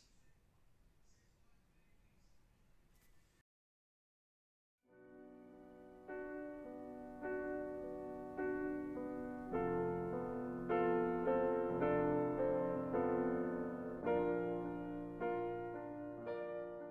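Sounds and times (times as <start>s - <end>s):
piano keyboard chords: 4.9s - 16.9s.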